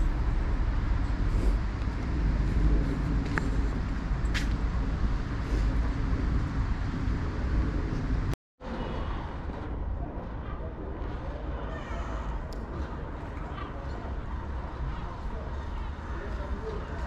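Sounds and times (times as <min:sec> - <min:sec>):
steady low street rumble: 0:00.0 - 0:17.0.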